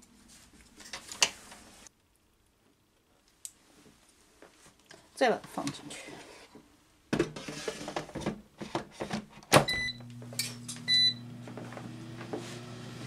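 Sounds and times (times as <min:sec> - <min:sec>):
air fryer beeps: 0:09.6 - 0:10.2, 0:10.8 - 0:11.4.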